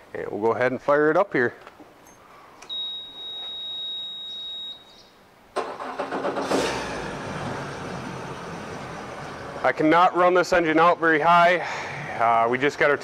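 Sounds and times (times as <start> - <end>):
high warning beep: 2.7 - 5.1
outboard motor starting and idling: 5.6 - 9.7.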